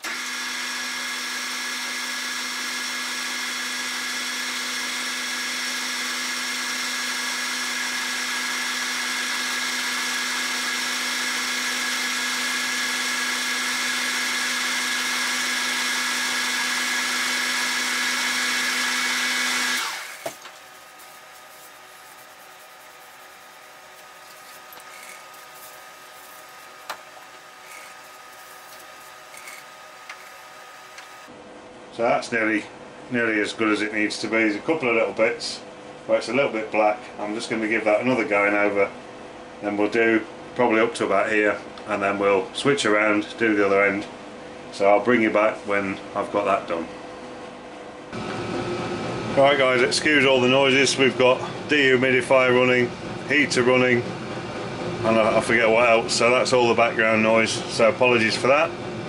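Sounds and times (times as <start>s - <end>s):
lathe running with whine: 0.0s - 31.4s.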